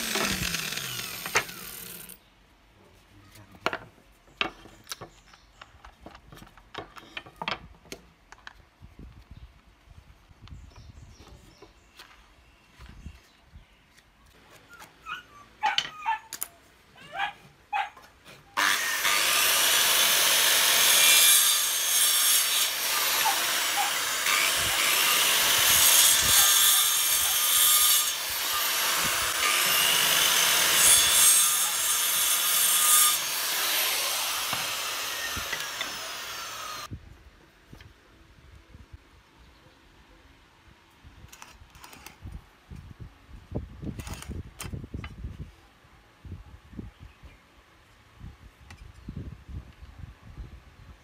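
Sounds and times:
circular saw cutting wood: 0.0 - 2.2, 18.6 - 36.9.

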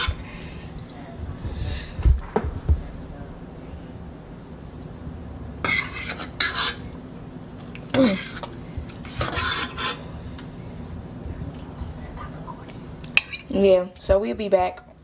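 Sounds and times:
fork scraping ceramic bowl: 5.6 - 6.9, 8.0 - 10.1.

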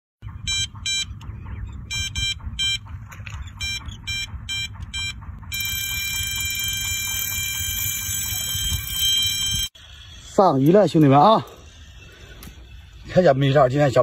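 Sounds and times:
bite alarm beeping: 0.2 - 10.3.

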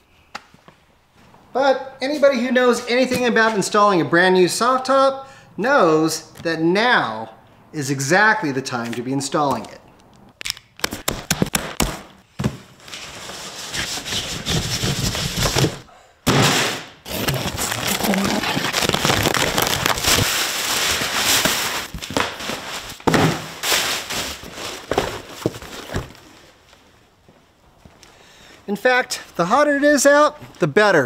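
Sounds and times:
cardboard rustling: 11.4 - 15.9, 17.0 - 26.6
crinkling plastic bag: 17.1 - 25.0.

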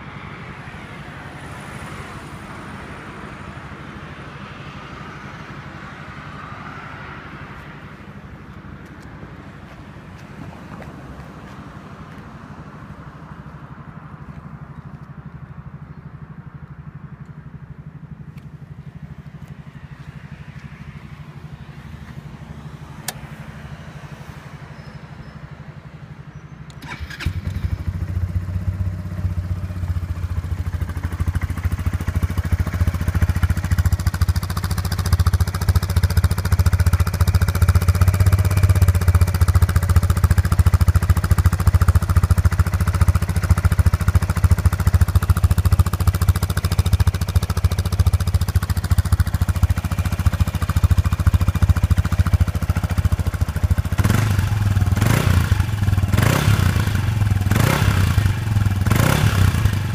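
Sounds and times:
scooter engine idling: 11.4 - 59.9.

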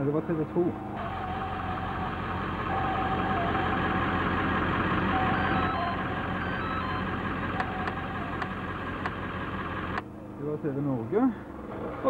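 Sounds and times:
vehicle engine running: 0.0 - 12.0
faint held tones: 5.1 - 8.6.

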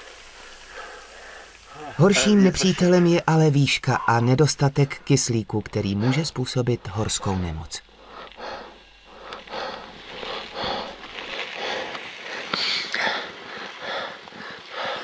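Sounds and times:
person breathing hard: 0.0 - 2.0, 7.9 - 15.0.

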